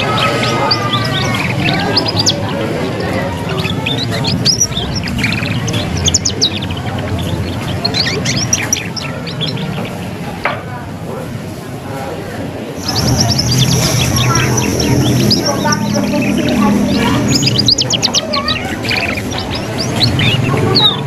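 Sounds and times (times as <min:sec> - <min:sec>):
canary twittering song: 0:00.0 - 0:10.3, 0:12.8 - 0:21.0
low background hum: 0:12.8 - 0:21.0.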